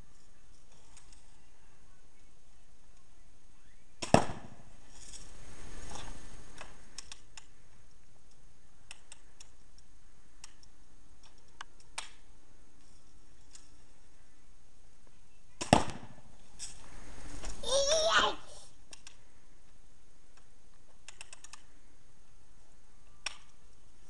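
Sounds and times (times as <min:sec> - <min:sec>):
bb gun shot: 0:04.0 - 0:04.7, 0:15.6 - 0:16.3.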